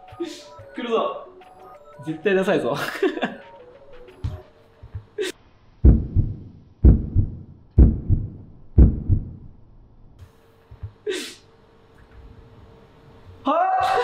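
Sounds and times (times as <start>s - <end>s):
heartbeat thumps: 5.8s - 9.6s.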